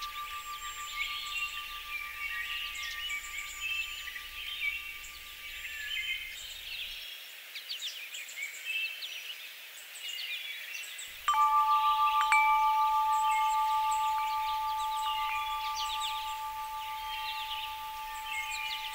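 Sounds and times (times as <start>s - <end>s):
two-note ringing tone: 0.0s - 6.4s, 11.3s - 18.9s
birds chirping and singing: 0.0s - 7.0s, 11.3s - 18.9s.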